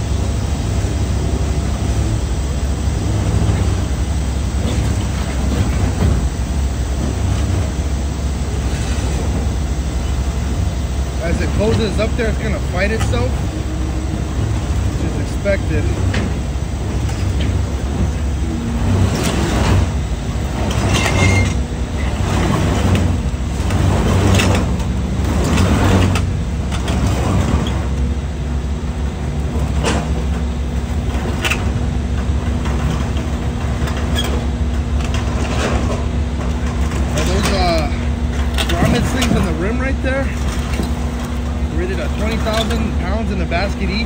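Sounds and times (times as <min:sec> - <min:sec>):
truck engine humming under load: 0:00.0 - 0:44.0
steady tone: 0:06.0 - 0:26.6.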